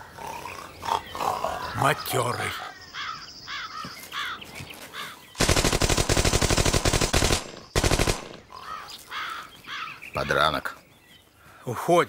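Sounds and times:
machine gun firing bursts: 0:05.4 - 0:08.5.

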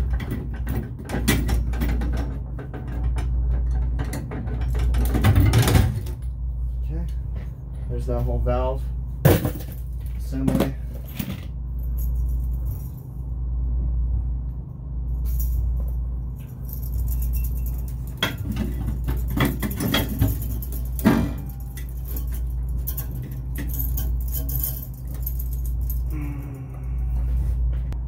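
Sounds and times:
steady low hum: 0:00.0 - 0:28.0
metal valve clinking and rattling: 0:15.2 - 0:26.2.

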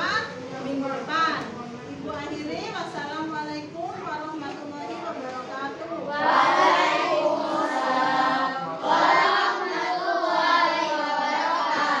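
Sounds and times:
children singing in unison: 0:06.1 - 0:12.0.

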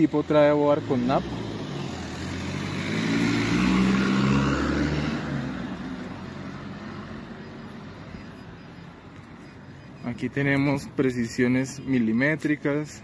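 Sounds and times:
vehicle driving past: 0:00.5 - 0:08.4.

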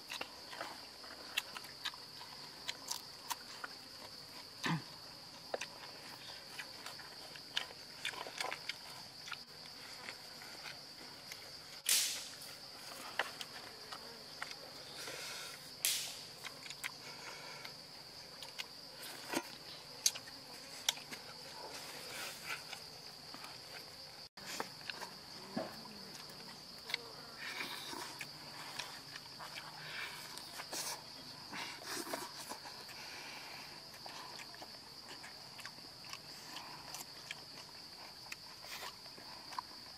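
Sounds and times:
food crunching while eaten: 0:00.0 - 0:12.3, 0:15.9 - 0:17.0, 0:33.8 - 0:39.9
insects buzzing: 0:00.0 - 0:39.9.

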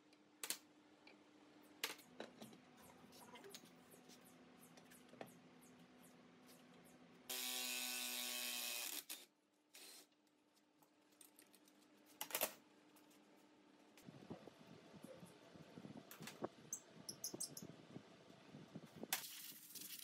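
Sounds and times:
cordless power tool running: 0:07.3 - 0:09.0.

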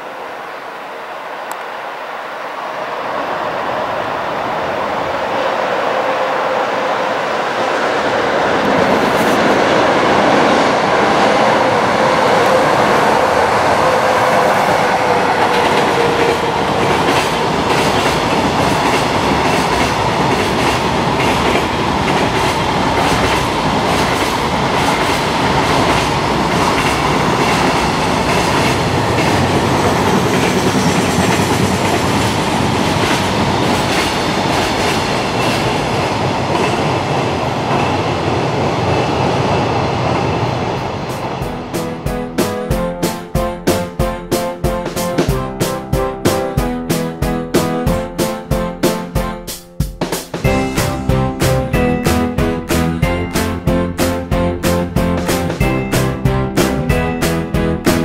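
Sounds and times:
rumble of wheels on rail: 0:00.0 - 0:43.0
train wheels clacking on rail joints: 0:08.6 - 0:37.1.

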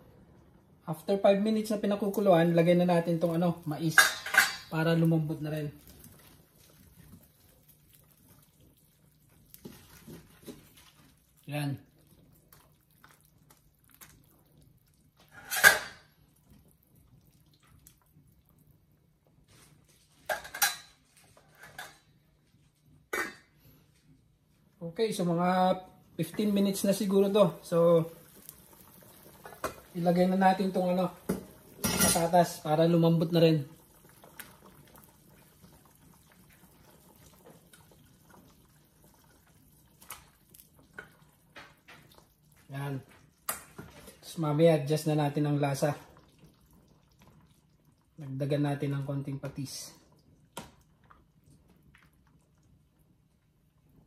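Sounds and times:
food plopping into boiling pot: 0:28.2 - 0:32.2, 0:33.8 - 0:44.2, 0:50.0 - 0:52.8.

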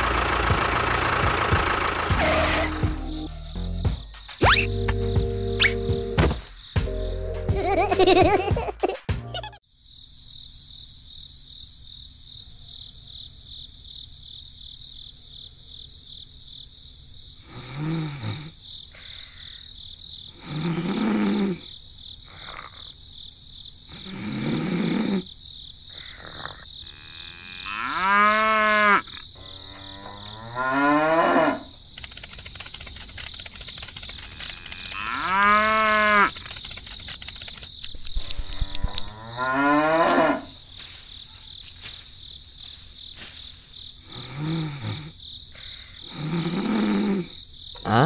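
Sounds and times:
insects chirring: 0:00.0 - 0:08.4, 0:09.5 - 0:48.0
cattle mooing: 0:26.9 - 0:31.7, 0:34.4 - 0:36.3, 0:38.5 - 0:40.6.

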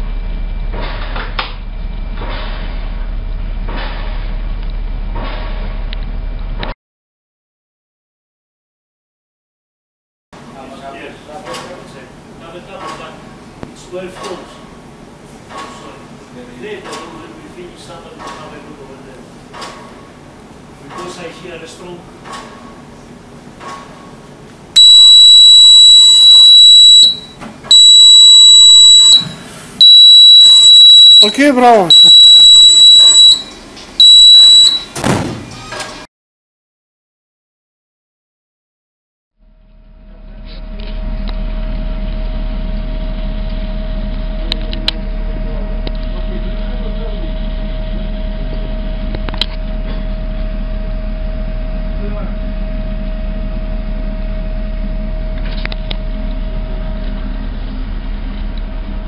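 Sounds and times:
low machinery hum: 0:00.0 - 0:06.6, 0:39.4 - 0:59.0
high-pitched fire alarm tone: 0:24.8 - 0:35.0.

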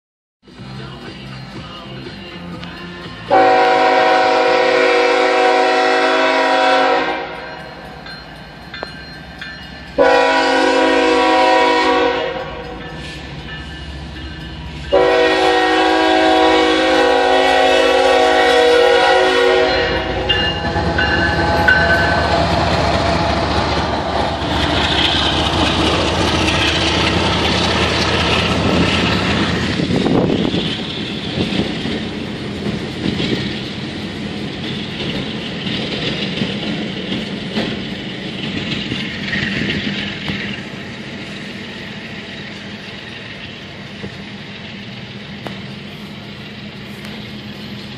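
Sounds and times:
locomotive air horn blasts: 0:03.3 - 0:07.6, 0:10.0 - 0:12.8, 0:14.9 - 0:22.6
train wheels clattering on rails: 0:05.6 - 0:47.9.

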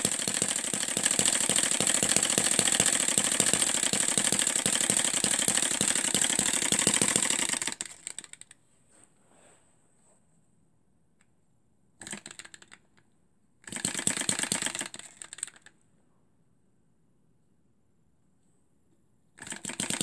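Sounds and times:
small engine running fast: 0:00.0 - 0:07.9.

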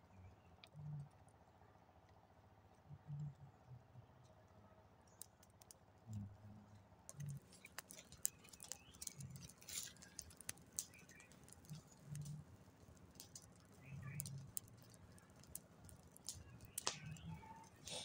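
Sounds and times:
fire of leaves and twigs crackling: 0:05.1 - 0:18.0.

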